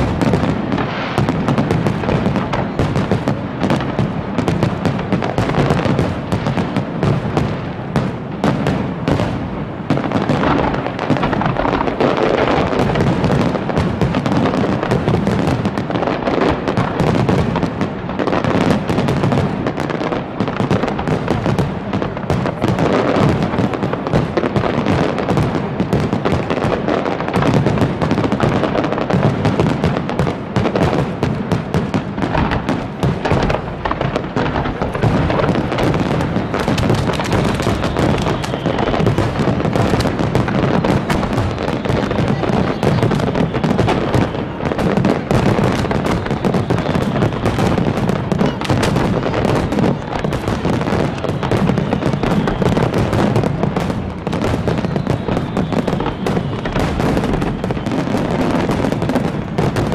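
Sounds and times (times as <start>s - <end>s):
fireworks crackling: 0.0s - 59.9s
fireworks shells bursting: 32.3s - 59.9s.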